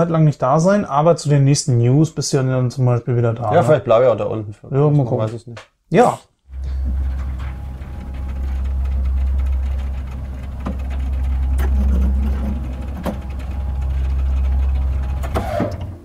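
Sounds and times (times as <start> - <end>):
elevator motor rumble: 6.5 - 16.0.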